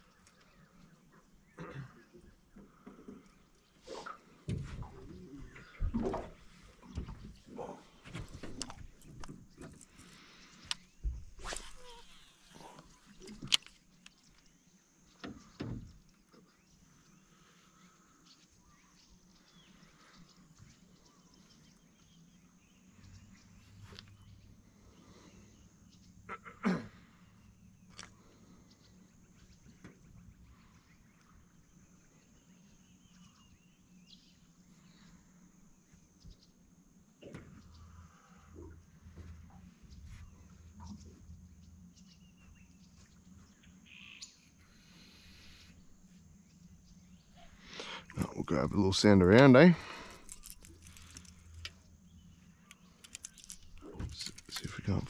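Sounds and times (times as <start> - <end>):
insects: 0.0 - 55.0
faint bird chirps: 4.8 - 55.0
bird chirps: 37.5 - 55.0.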